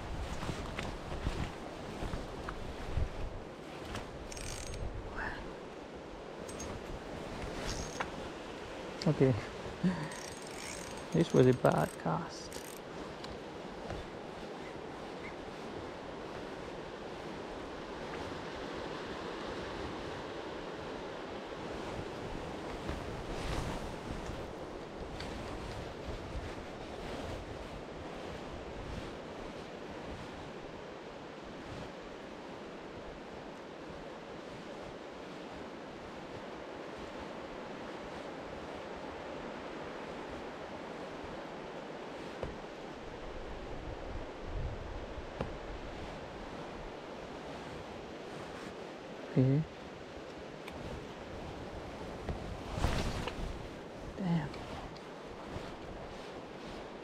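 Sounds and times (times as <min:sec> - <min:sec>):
cloth rustling against camera: 0:00.0 - 0:04.7, 0:50.8 - 0:56.9
wind buffeting microphone: 0:00.0 - 0:05.4, 0:42.2 - 0:48.6, 0:50.4 - 0:57.0
wind rushing over microphone: 0:00.0 - 0:09.9, 0:10.7 - 0:57.0.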